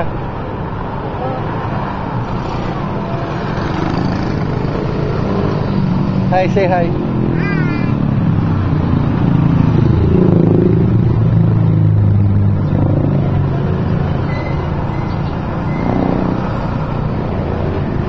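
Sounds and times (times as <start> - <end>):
hum of street noise: 0.0 - 18.0.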